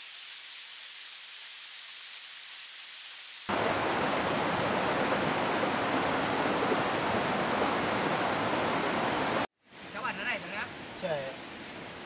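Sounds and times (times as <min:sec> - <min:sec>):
river rushing over rapids: 0:03.5 - 0:12.0.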